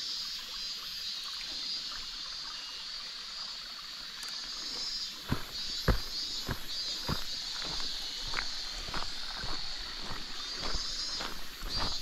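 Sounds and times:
outdoor background hiss: 0.0s - 12.0s
footsteps on a trail: 4.7s - 12.0s.

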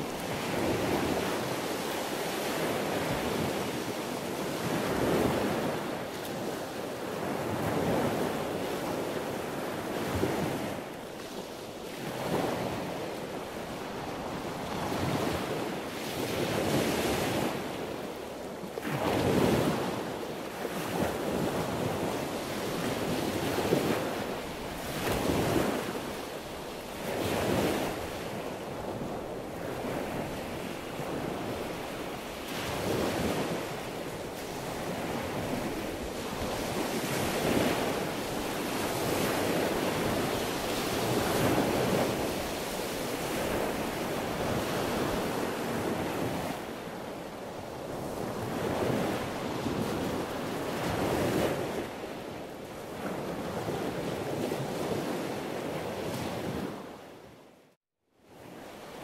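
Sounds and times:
sea waves breaking: 0.0s - 57.0s.

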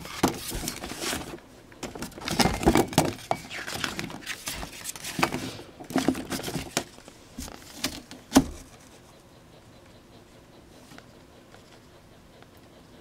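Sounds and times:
booklet pages flipping: 0.0s - 9.0s.

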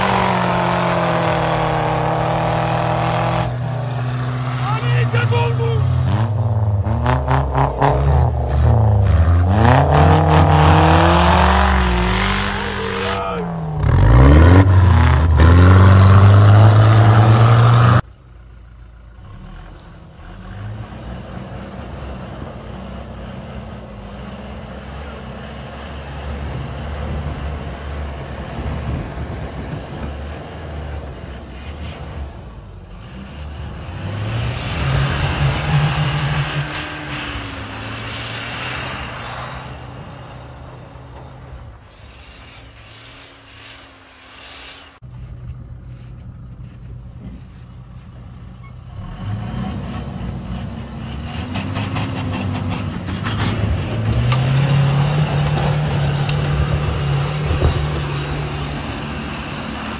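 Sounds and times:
truck engine revving: 0.0s - 18.2s, 18.8s - 59.9s.

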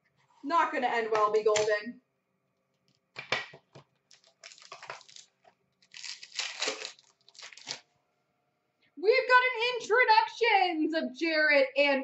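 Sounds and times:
card pack crinkling and tearing: 4.1s - 7.9s.

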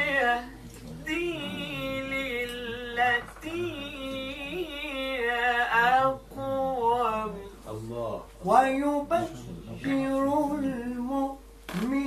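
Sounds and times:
man chanting melodic recitation: 0.0s - 7.6s.

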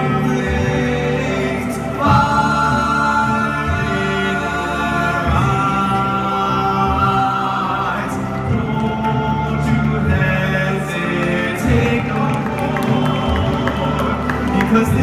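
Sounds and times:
choir singing held chords: 0.0s - 15.0s.

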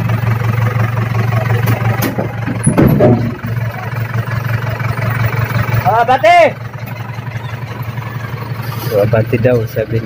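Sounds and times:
truck engine idling: 0.0s - 10.0s
knocks and clatter: 1.6s - 3.7s.

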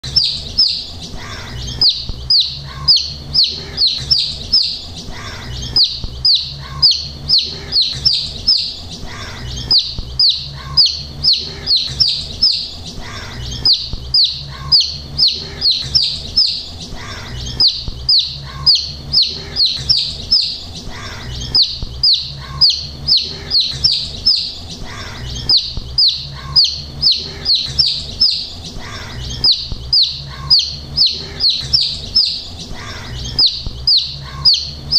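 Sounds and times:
chicks peeping: 0.0s - 34.9s.

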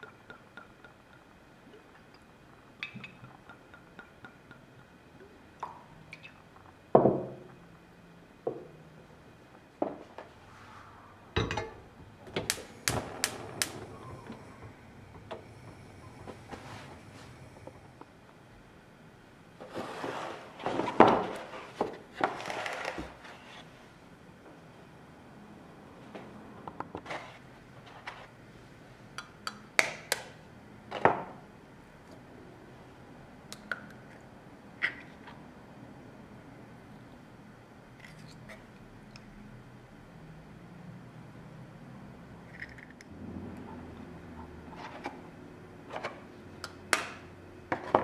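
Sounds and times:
gas hob igniter clicking: 12.4s - 14.4s.

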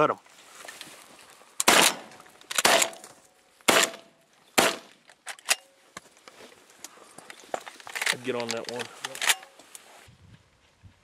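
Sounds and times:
shotgun blasts: 1.7s - 3.0s, 3.7s - 4.9s.

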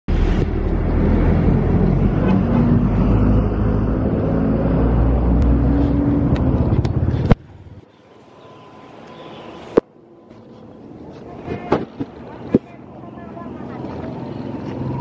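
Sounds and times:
wind buffeting microphone: 0.2s - 7.8s.

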